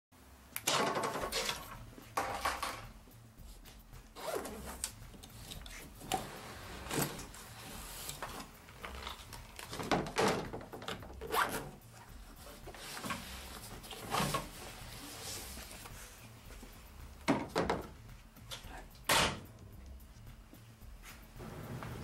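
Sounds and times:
zipper pulled open: 0:04.2 - 0:04.9, 0:11.2 - 0:11.8
fabric rubbing: 0:11.3 - 0:16.8.

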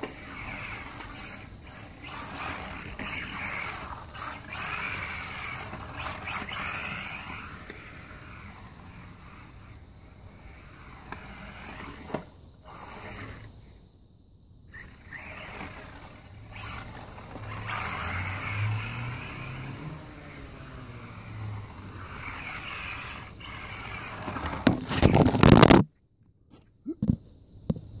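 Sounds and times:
tyres rolling on paving: 0:00.0 - 0:13.5, 0:14.7 - 0:25.8
rc car electric motor whining: 0:00.0 - 0:13.8, 0:14.7 - 0:25.7
loud scraping rustle: 0:14.7 - 0:25.8.

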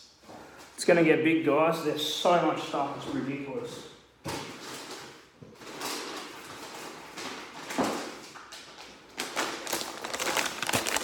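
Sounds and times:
plastic bags rustling and crinkling: 0:04.3 - 0:11.0.

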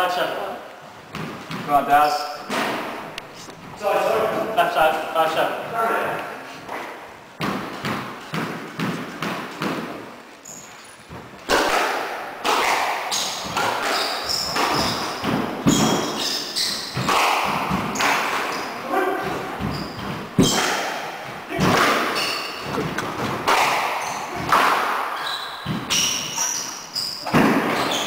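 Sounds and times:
squash ball hitting rackets and walls: 0:01.0 - 0:04.6, 0:05.6 - 0:28.0
shoes squeaking on wooden floor: 0:05.7 - 0:11.7, 0:13.1 - 0:28.0.

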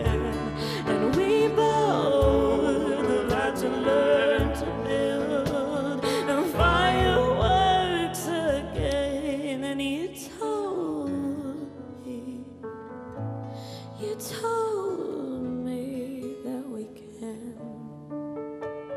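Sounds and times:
cajon beat: 0:00.0 - 0:09.8
woman singing: 0:00.0 - 0:12.6, 0:13.6 - 0:18.1
acoustic accompaniment: 0:00.0 - 0:18.9.

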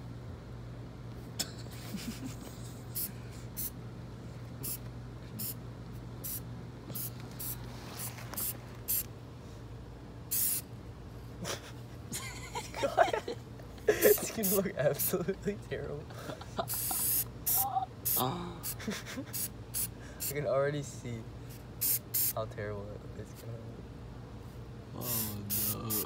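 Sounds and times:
spray paint can hissing: 0:06.2 - 0:06.4, 0:08.4 - 0:09.1, 0:10.3 - 0:10.6, 0:16.7 - 0:18.2, 0:19.3 - 0:20.3, 0:21.8 - 0:22.4, 0:25.1 - 0:26.0.

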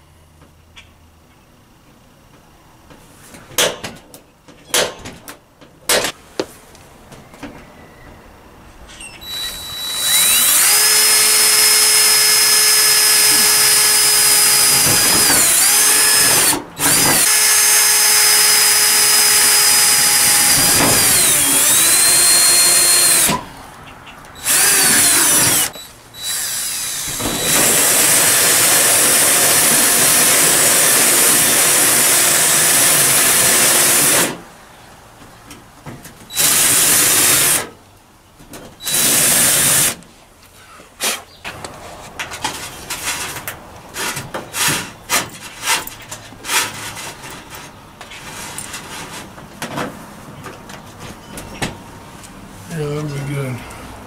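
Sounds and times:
cordless drill whining: 0:09.2 - 0:23.4, 0:24.4 - 0:34.4, 0:36.3 - 0:37.7, 0:38.8 - 0:40.0.

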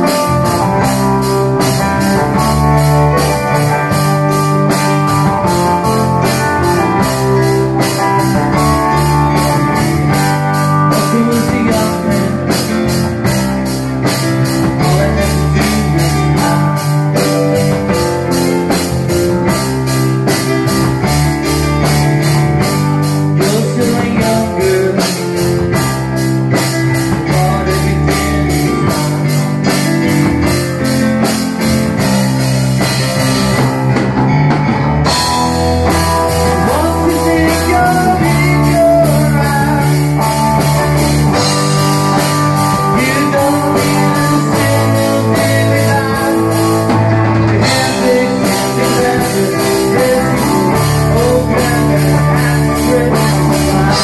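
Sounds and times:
man singing: 0:00.0 - 0:19.6, 0:20.2 - 0:31.0, 0:35.1 - 0:54.0
rock band playing: 0:00.0 - 0:54.0.

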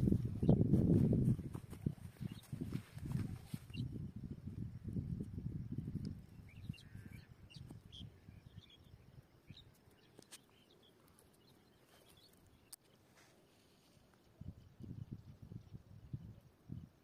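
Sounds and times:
faint bird chirps: 0:00.2 - 0:04.0, 0:05.8 - 0:17.0.

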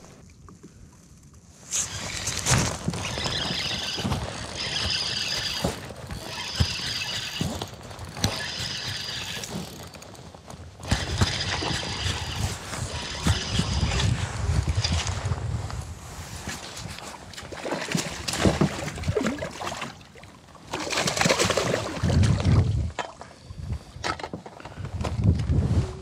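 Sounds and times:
fishing reel squealing: 0:01.7 - 0:10.0, 0:10.8 - 0:14.2.

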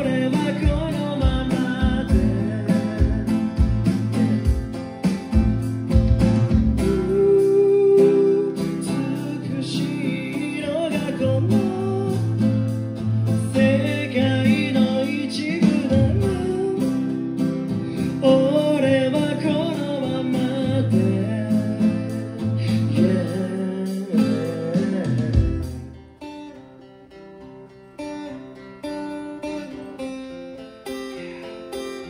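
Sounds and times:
man singing through pa: 0:00.0 - 0:04.6, 0:06.8 - 0:17.3, 0:17.9 - 0:26.0
acoustic guitar: 0:00.0 - 0:32.0.

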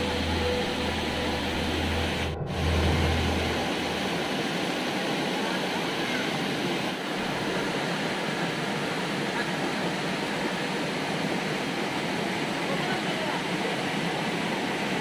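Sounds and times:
low rumble beneath water: 0:00.0 - 0:05.5
waterfall rushing over rocks: 0:00.0 - 0:15.0.

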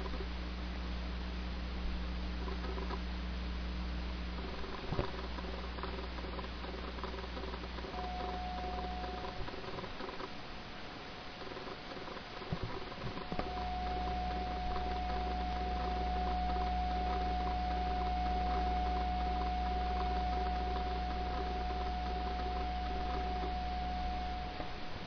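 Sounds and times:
inverter high-pitched whine: 0:00.0 - 0:25.0
low electrical hum: 0:00.0 - 0:25.0.

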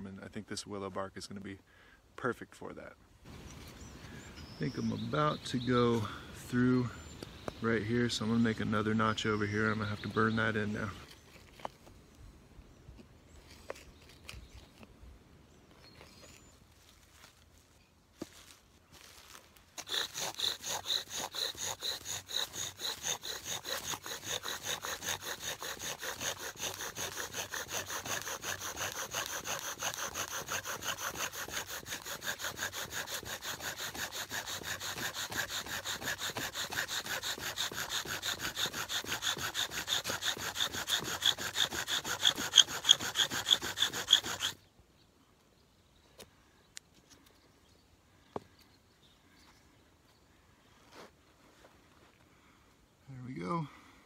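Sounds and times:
squeaky wood on wood rubbing: 0:19.8 - 0:44.6.

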